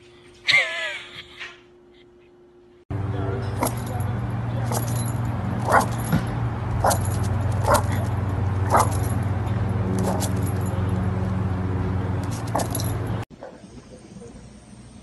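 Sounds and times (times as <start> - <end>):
steady low hum: 1.6 - 15.0
dog yipping barks: 5.6 - 6.1, 6.8 - 9.2, 10.0 - 10.4, 12.3 - 12.8.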